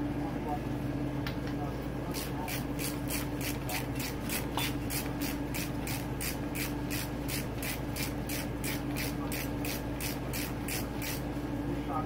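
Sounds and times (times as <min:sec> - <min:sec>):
ratchet wrench clicking: 0:02.5 - 0:11.2.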